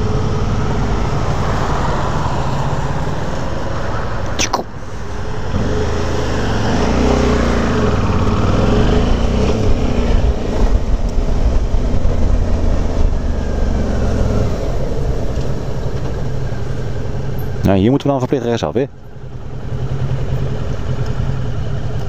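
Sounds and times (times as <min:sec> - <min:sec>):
road and wind noise: 0:00.0 - 0:22.0
motorcycle engine revving: 0:05.1 - 0:17.6.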